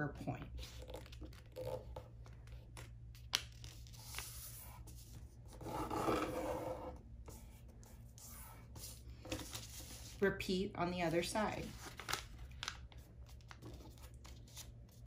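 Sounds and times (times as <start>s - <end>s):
paper folding and rubbing: 3.6s - 10.2s, 11.2s - 15.0s.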